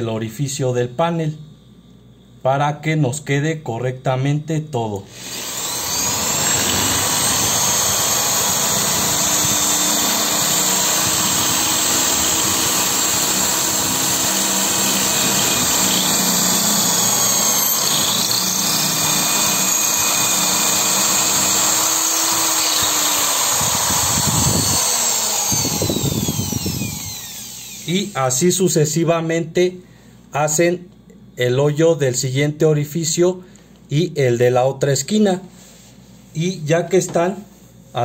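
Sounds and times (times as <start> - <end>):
electric drill boring into wall: 5.1 - 28.4.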